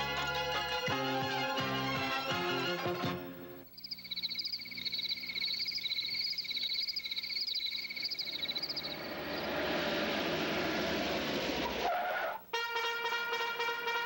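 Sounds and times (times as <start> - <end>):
crickets chirping trill: 3.4 - 12.6
higher warbling chirp: 3.8 - 10.6
rising rush of noise: 8.2 - 11.9.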